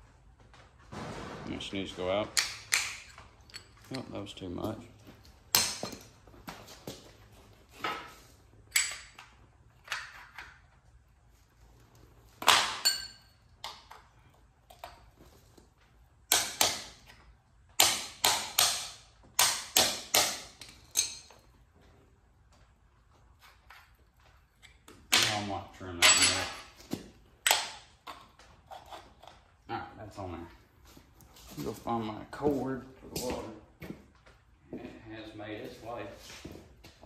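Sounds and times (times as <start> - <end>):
metal-on-metal knocks and clanks: 0.9 - 3.8, 25.1 - 26.8.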